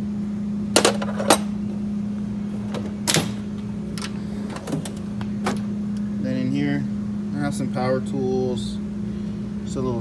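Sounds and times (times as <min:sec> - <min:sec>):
steady hum: 0:00.0 - 0:10.0
metal drawer clacking: 0:02.6 - 0:05.6
tools knocking and rattling: 0:02.7 - 0:05.6.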